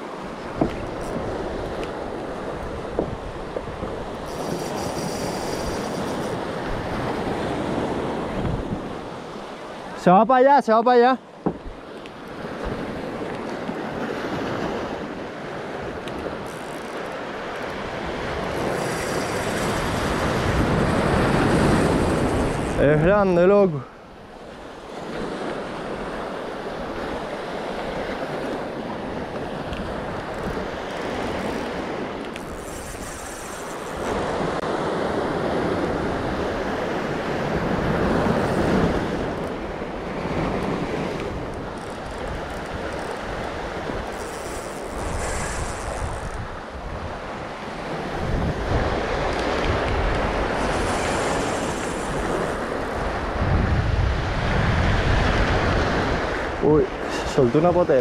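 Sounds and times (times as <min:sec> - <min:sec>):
wind rumbling on microphone: 0:00.0 - 0:09.9, 0:11.4 - 0:58.0
surf washing over pebbles: 0:33.0 - 0:58.0.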